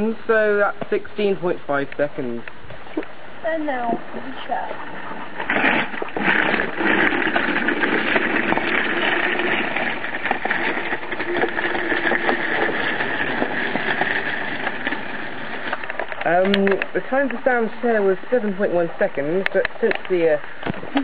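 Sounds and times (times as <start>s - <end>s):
caster wheels rolling over tarmac: 3.5s - 21.0s
small ticks and knocks: 8.5s - 17.5s.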